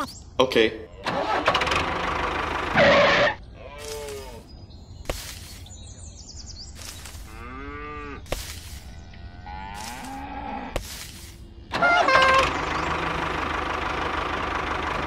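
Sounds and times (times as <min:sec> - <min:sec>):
cattle mooing: 0:02.8 - 0:04.4, 0:07.2 - 0:08.3, 0:09.1 - 0:10.8.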